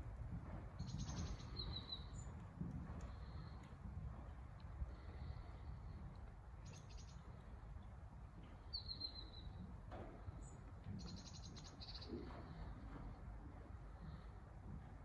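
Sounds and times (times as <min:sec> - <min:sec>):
small birds chirping: 0:00.8 - 0:03.6.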